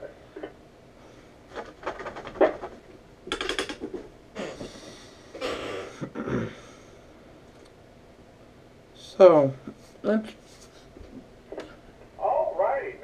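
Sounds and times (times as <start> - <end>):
garbled radio voice: 12.2 - 13.0
radio static: 12.2 - 13.0.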